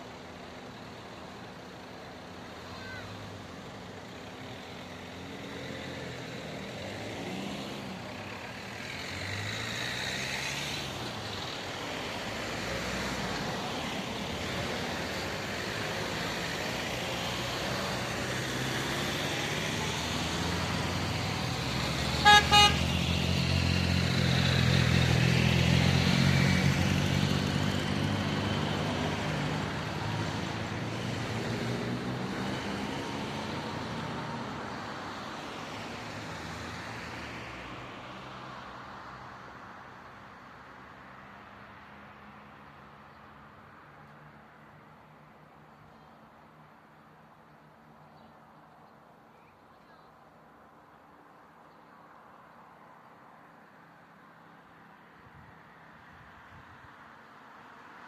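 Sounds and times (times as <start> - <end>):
cars driving past: 0.0 - 48.6
vehicle horn toots: 22.2 - 22.9.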